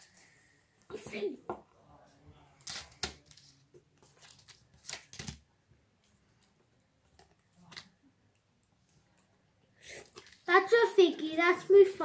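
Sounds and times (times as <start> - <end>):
card flicks and rustles: 2.6 - 5.4.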